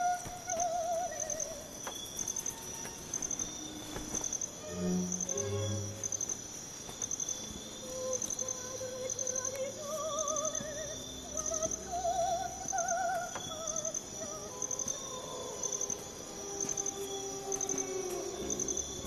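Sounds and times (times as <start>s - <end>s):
crickets chirping: 0.0s - 19.0s
soft film score music: 0.0s - 19.0s.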